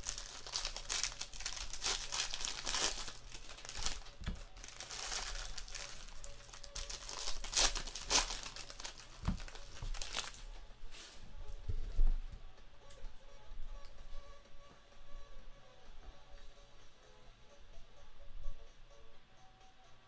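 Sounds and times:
foil wrappers tearing and crumpling: 0.0s - 10.4s.

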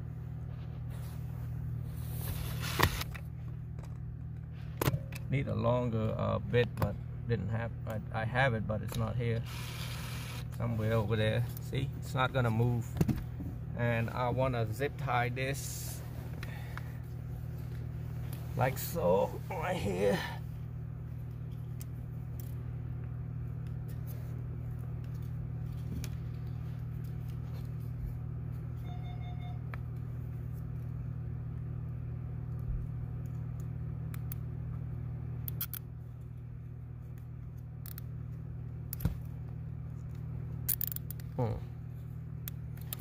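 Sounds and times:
steady low hum: 0.0s - 43.0s
short electronic beep: 28.8s - 29.6s
clicks and rustles of wiring: 35.4s - 41.6s, 42.4s - 43.0s.

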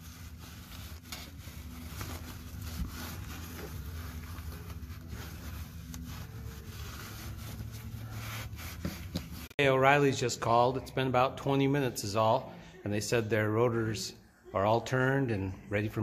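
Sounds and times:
low steady hum: 0.0s - 9.5s
hand rubbing near microphone: 0.0s - 9.6s.

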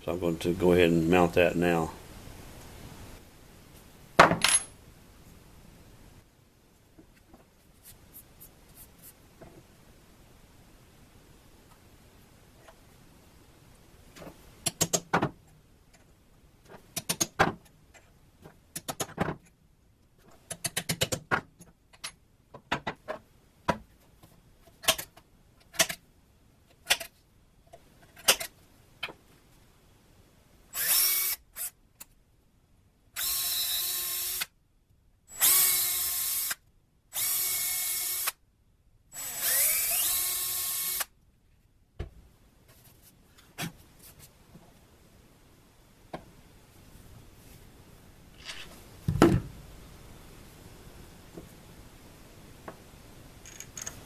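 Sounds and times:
power drill drilling wood: 33.2s - 34.5s, 35.3s - 36.6s, 37.2s - 38.4s, 39.1s - 41.1s.

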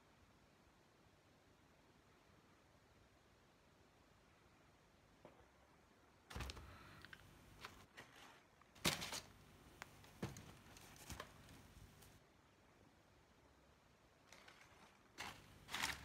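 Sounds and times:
tissue paper crinkling: 14.3s - 16.0s.

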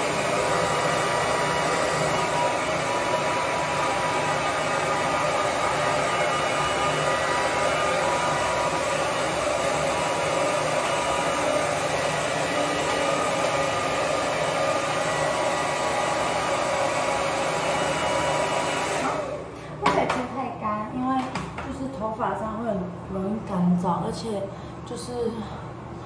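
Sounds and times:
hair dryer blowing: 0.0s - 20.4s.

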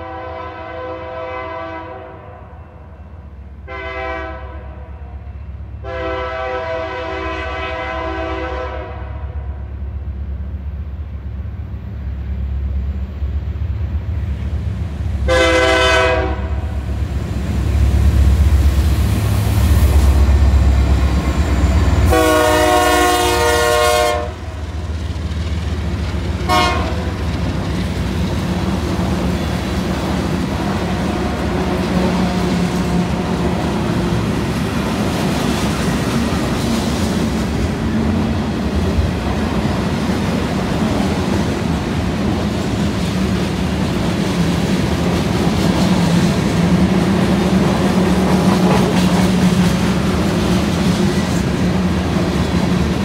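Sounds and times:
locomotive air horn blasts: 0.0s - 2.8s, 3.7s - 5.2s, 5.8s - 9.5s, 15.2s - 16.8s, 22.0s - 24.6s, 26.4s - 27.1s
locomotive rumble passing: 0.0s - 53.0s
freight cars rolling on rails: 10.0s - 53.0s.

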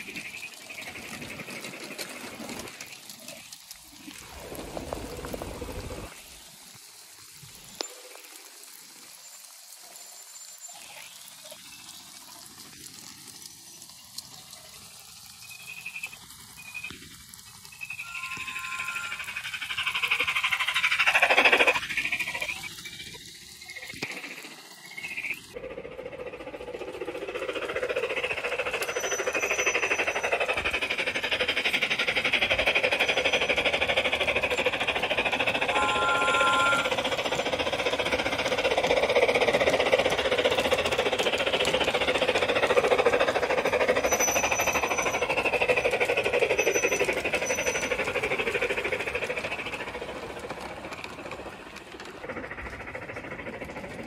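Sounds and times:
model train wheels clattering: 0.0s - 5.9s, 18.0s - 24.4s, 25.7s - 54.0s
short steady tone: 18.0s - 19.4s, 35.7s - 37.2s.

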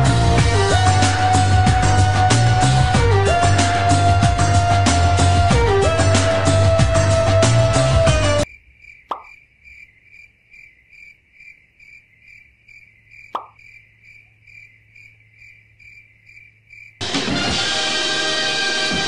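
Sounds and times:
music: 0.0s - 8.4s, 17.0s - 19.0s
crickets chirping: 8.4s - 17.0s.

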